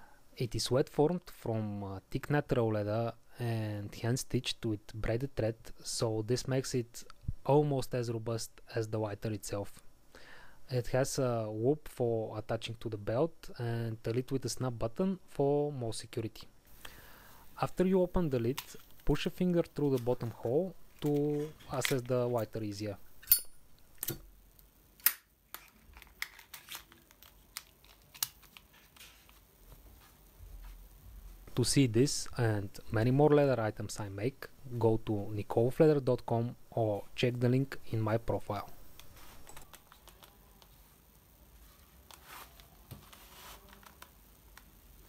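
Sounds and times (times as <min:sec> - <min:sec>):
clothing rustles: 0:28.6 - 0:31.5, 0:41.6 - 0:44.0.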